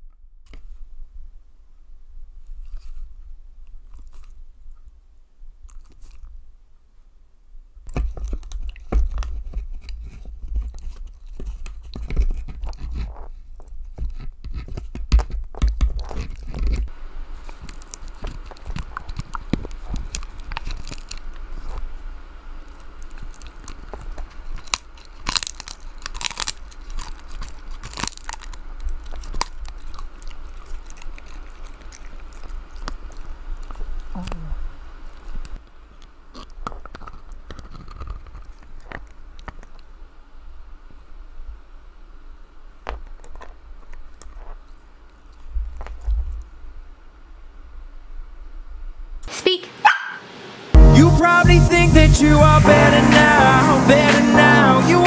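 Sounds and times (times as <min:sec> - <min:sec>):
dog crunching on dried chews: 0:02.5 - 0:04.9, 0:05.5 - 0:06.5, 0:07.8 - 0:22.0, 0:22.6 - 0:34.2, 0:35.0 - 0:39.9.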